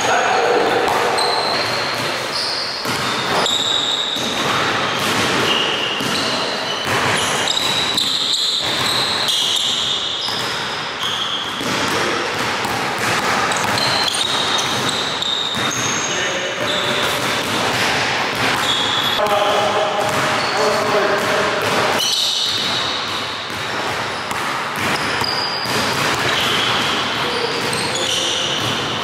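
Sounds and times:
sneakers squeaking: 0.0 - 29.0
basketball dribbling on hardwood: 11.3 - 15.8, 20.0 - 27.0.

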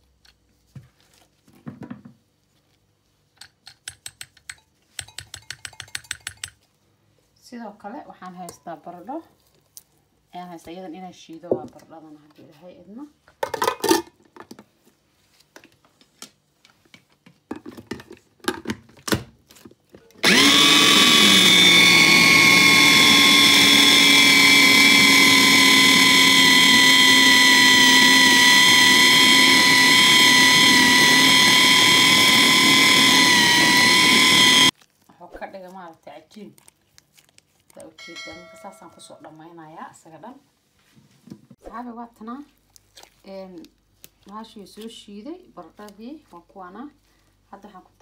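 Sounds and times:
food processor motor running: 20.2 - 34.7.

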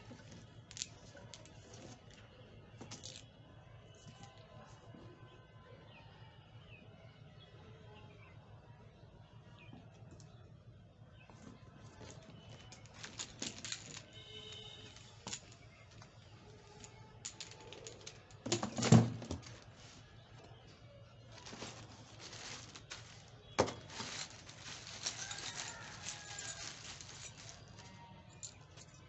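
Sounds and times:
rustling packaging: 11.9 - 15.6, 21.2 - 29.0.

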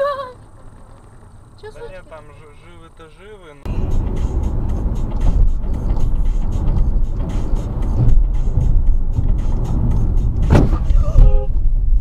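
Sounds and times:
car engine and road rumble: 0.0 - 12.0
sharp knock: 10.4 - 11.4.

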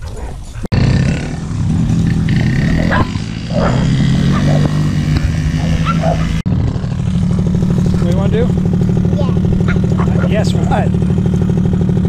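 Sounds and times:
small motorbike engine running: 0.7 - 12.0
dog barking: 2.7 - 4.9, 5.5 - 6.4, 9.7 - 10.6.

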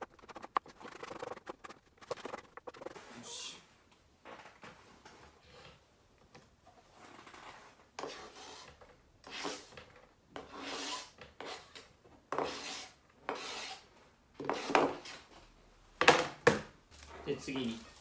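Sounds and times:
knife scraping cutting board: 0.0 - 3.1, 12.4 - 13.8.

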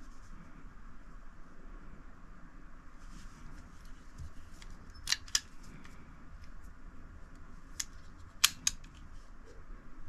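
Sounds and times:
revolver action clicking: 7.7 - 9.1.

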